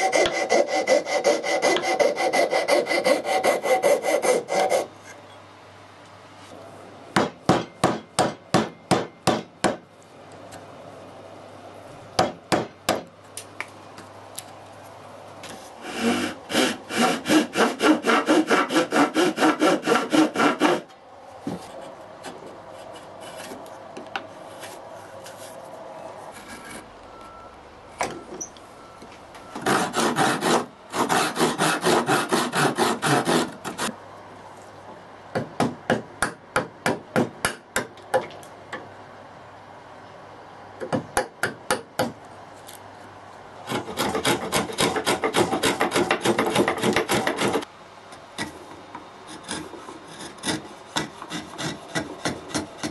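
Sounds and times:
file strokes on wood: 0:00.0 - 0:04.9, 0:15.8 - 0:20.8, 0:29.7 - 0:33.9, 0:49.3 - 0:52.9.

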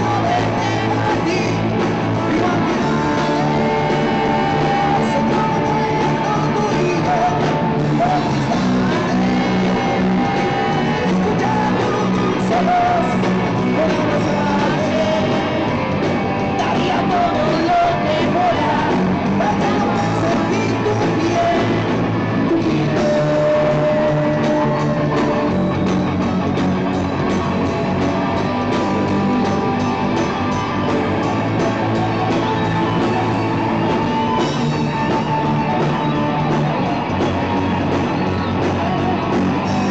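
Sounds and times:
man singing into microphone: 0:00.0 - 0:15.8, 0:16.4 - 0:25.6
electric guitars through amplifiers: 0:00.0 - 0:39.9.

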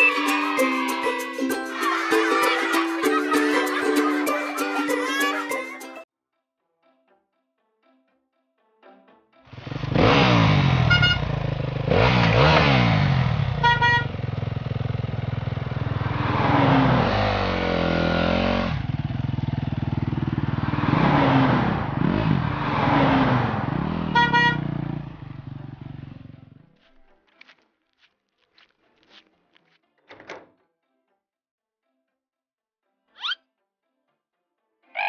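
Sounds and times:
motorbike engine revving: 0:09.5 - 0:26.6
horn beeps: 0:10.8 - 0:11.3, 0:13.6 - 0:14.1, 0:24.1 - 0:24.8.

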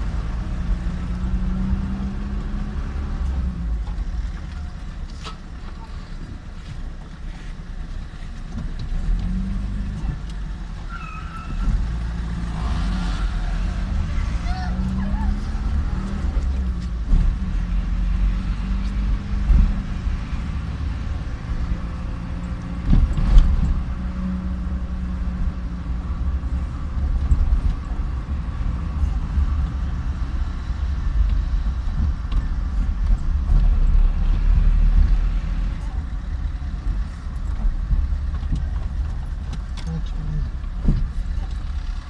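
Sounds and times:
vehicle engine and road noise: 0:00.0 - 0:42.0.

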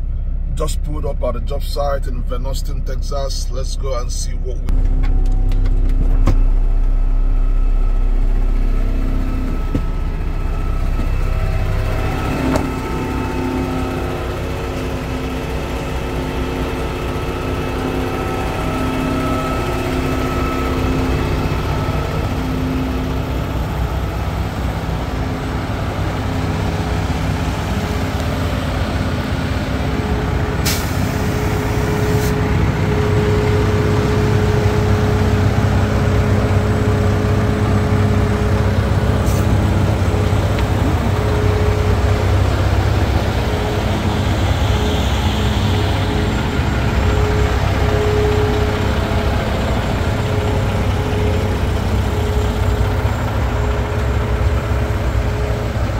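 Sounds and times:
diesel trucks idling: 0:00.0 - 0:55.9
air brake hiss: 0:30.6 - 0:32.4, 0:39.2 - 0:39.6.

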